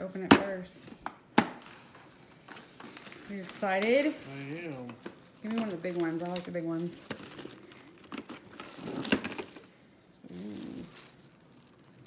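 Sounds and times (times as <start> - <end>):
plastic rustling: 1.5 - 12.0.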